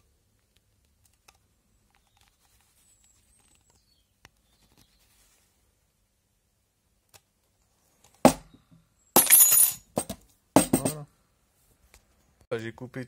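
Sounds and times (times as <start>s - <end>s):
sharp knock on a table: 8.3s - 8.5s, 10.0s - 11.0s
metallic clinking and clattering: 9.2s - 11.0s.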